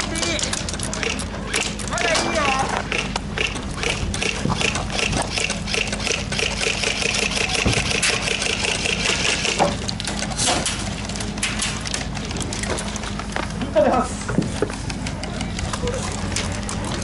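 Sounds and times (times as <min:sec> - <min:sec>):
airsoft guns firing full auto: 0:02.9 - 0:09.7.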